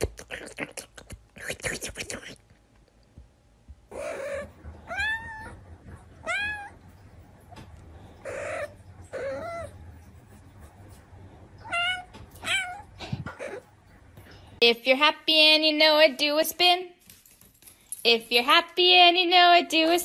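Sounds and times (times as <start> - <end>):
cat meowing: 3.9 - 5.6, 6.2 - 6.8, 11.6 - 13.6
cat breathy sounds: 12.7 - 14.6.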